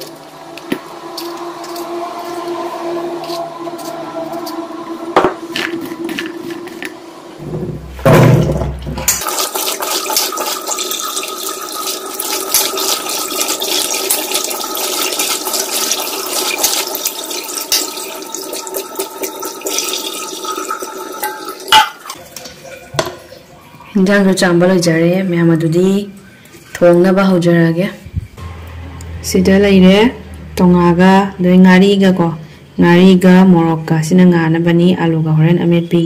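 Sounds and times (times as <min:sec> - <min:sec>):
loud low rush: 0:00.0 - 0:09.0, 0:28.3 - 0:31.6.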